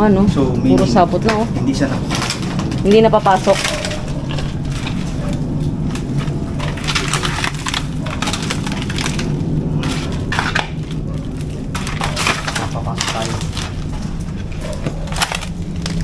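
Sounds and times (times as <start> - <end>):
steady low hum: 0.0 - 16.0
wooden boards cracking and scraping: 0.7 - 16.0.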